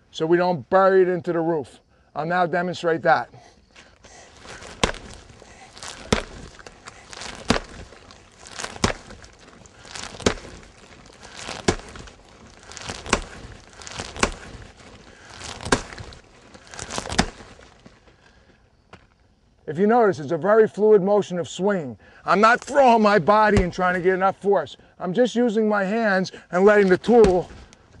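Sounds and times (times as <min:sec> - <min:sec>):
axe chopping wood: 0:04.6 - 0:05.2, 0:05.8 - 0:07.9, 0:08.5 - 0:09.3, 0:09.9 - 0:10.7, 0:11.3 - 0:14.7, 0:15.4 - 0:16.2, 0:16.8 - 0:17.6, 0:27.0 - 0:27.5.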